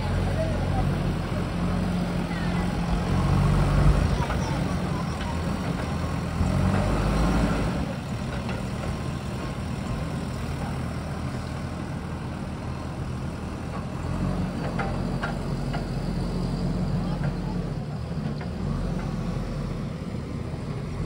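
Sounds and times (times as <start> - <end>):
diesel engine running: 0.0 - 21.0.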